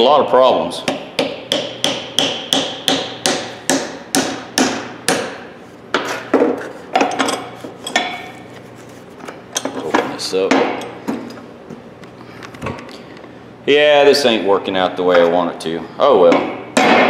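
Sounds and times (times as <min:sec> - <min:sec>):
hammer knocking wooden wedge: 0:00.9 - 0:05.4.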